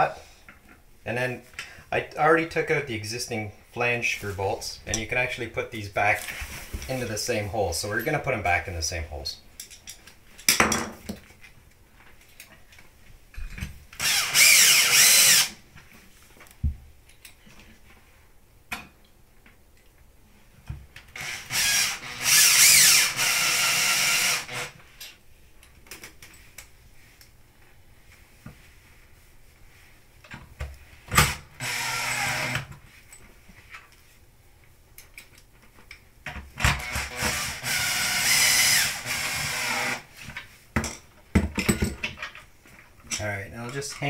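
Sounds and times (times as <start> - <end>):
cordless drill driving screws: 14.0 - 15.6, 21.1 - 24.8, 31.2 - 32.7, 36.6 - 40.1.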